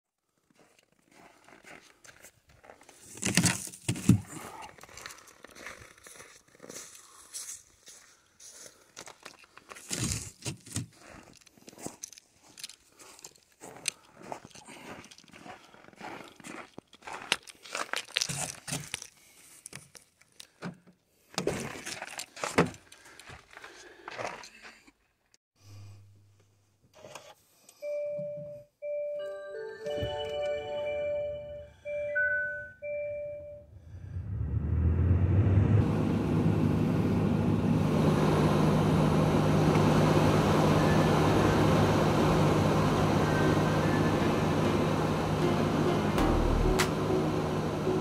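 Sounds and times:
footsteps crunching in snow: 0.4s - 3.2s, 4.8s - 18.8s.

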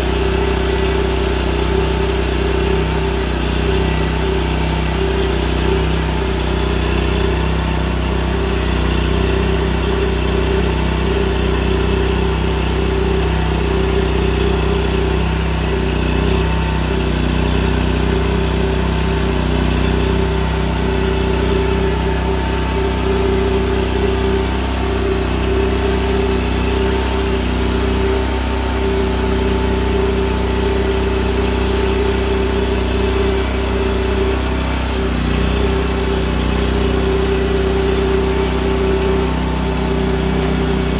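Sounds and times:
band blade cutting log: 0.0s - 40.9s
sawmill engine running: 0.0s - 40.9s.

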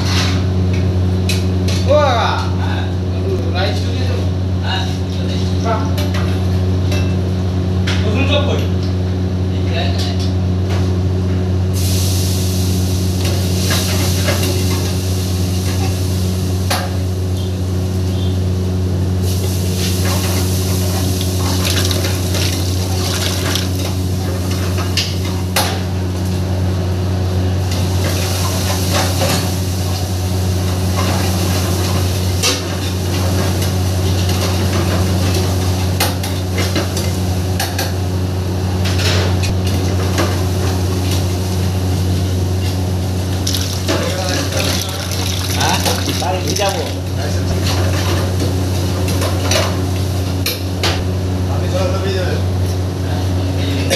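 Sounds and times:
gas burner hum: 0.0s - 53.9s
frying hiss: 11.7s - 18.5s, 19.1s - 25.5s, 40.1s - 50.3s.

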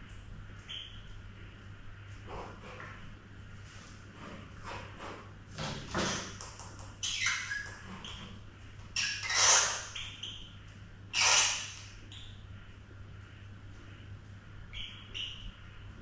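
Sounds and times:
mouse squealing: 6.8s - 8.3s, 8.9s - 12.4s, 14.7s - 15.6s.

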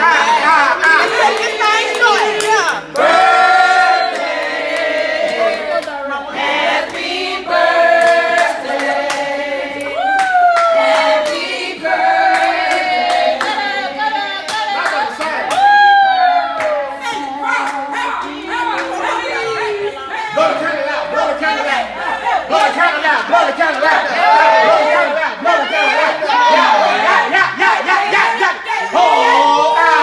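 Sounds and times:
group of people singing: 0.0s - 30.0s
hands clapping: 0.2s - 3.2s, 14.4s - 15.8s.

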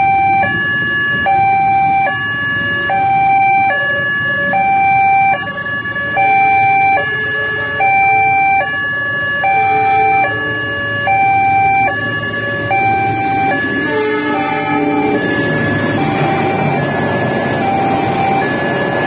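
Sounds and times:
level-crossing two-tone alarm: 0.0s - 19.0s.

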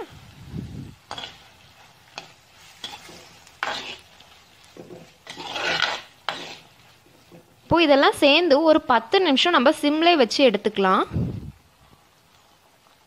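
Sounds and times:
spoon scraping frying pan: 1.0s - 7.7s.

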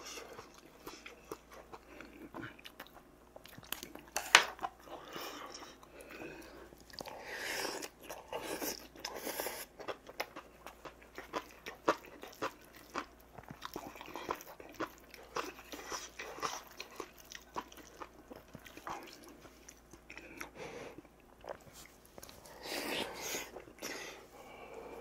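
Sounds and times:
person chewing: 0.0s - 25.0s.

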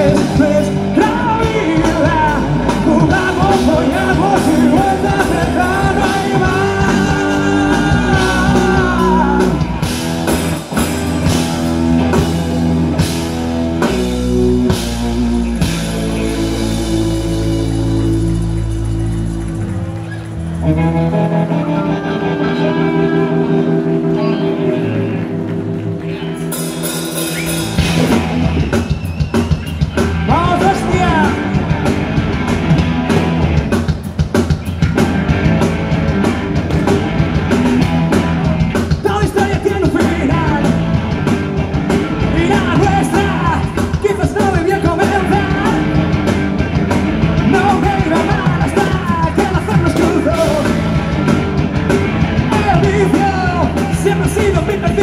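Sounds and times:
man singing: 0.0s - 9.8s, 30.3s - 31.6s, 38.9s - 40.9s, 42.2s - 46.2s, 47.4s - 51.4s, 52.4s - 55.0s
live rock band playing: 0.0s - 55.0s.

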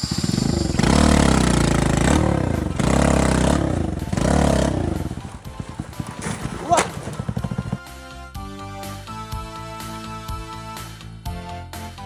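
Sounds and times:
motorcycle engine revving: 0.0s - 8.0s.

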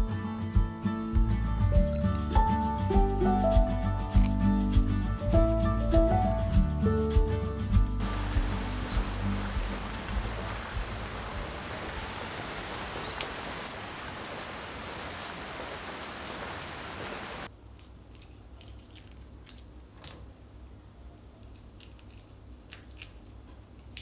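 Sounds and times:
scissors snipping: 4.2s - 4.4s
steady rain: 8.0s - 17.5s.

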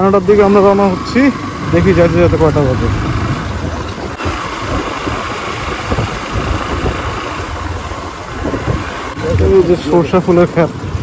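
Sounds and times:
motorcycle engine: 0.0s - 10.9s
road noise: 0.0s - 11.0s.

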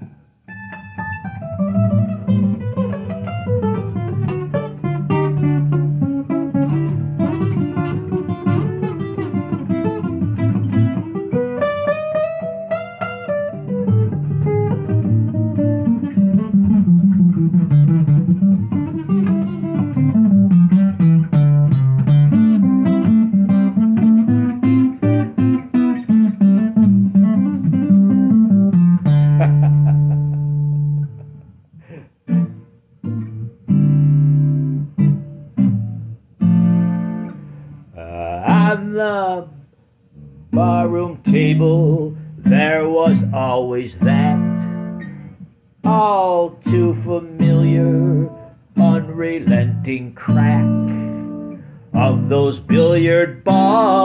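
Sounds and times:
acoustic guitar picked melody: 0.0s - 54.0s.

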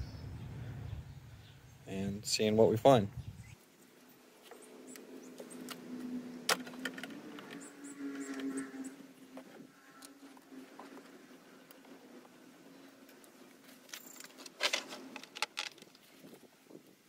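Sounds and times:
faint steady hum: 0.0s - 17.0s
plastic clicks and rattles: 6.5s - 7.6s, 13.9s - 16.1s.

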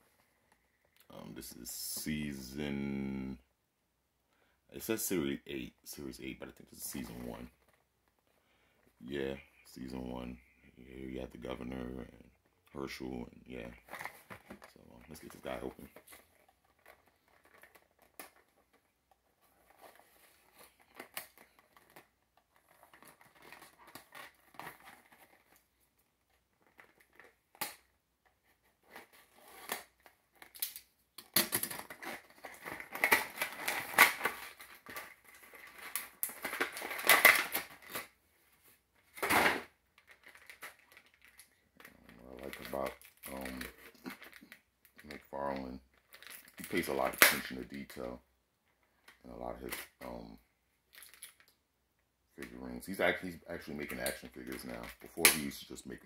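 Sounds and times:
plastic packaging crinkling: 13.5s - 27.6s, 28.6s - 38.2s, 39.2s - 48.0s, 50.9s - 51.5s
plastic rustles and clicks: 13.5s - 50.2s, 50.9s - 51.6s, 52.4s - 56.0s
sharp plastic crack: 26.7s - 28.0s, 29.7s - 38.1s, 54.0s - 55.6s.

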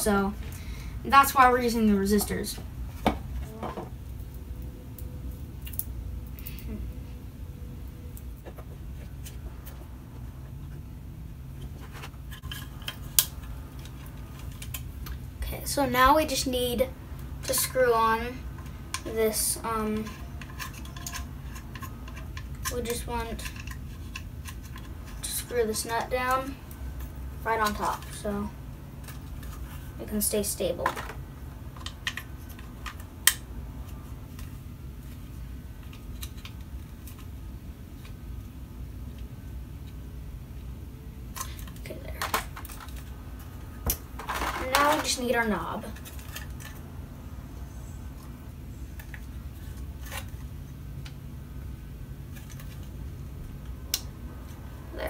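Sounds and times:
plastic parts clicking and tapping: 41.4s - 43.1s, 43.8s - 45.3s.

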